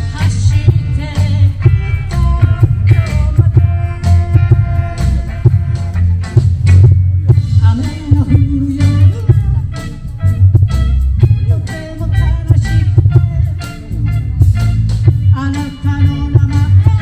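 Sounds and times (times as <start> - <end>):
live band through speakers: 0.0 - 17.0.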